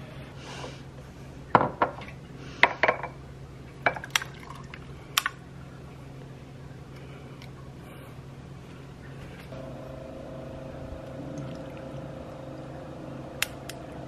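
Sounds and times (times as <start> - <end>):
low steady hum: 0.0 - 14.0
espresso pouring: 9.6 - 14.0.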